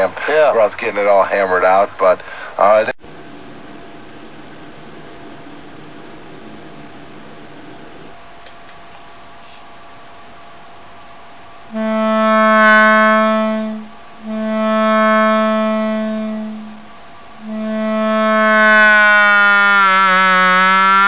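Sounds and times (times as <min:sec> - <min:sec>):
faint hiss: 0:00.0 - 0:18.3
loudspeaker feedback howl: 0:11.7 - 0:21.0.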